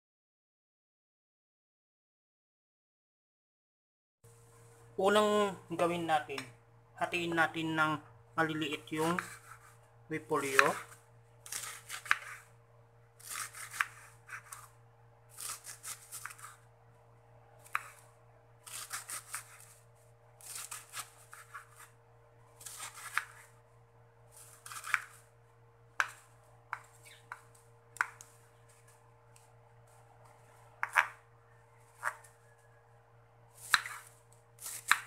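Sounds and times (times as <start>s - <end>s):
faint steady hum: 4.3s - 35.0s
knife slicing through cabbage: 9.0s - 9.8s, 10.4s - 12.5s, 13.2s - 16.6s, 17.6s - 19.8s, 20.4s - 22.0s, 22.6s - 23.6s, 24.3s - 25.3s, 31.9s - 32.4s, 33.6s - 35.0s
knife tapping chopping board: 30.8s - 31.2s.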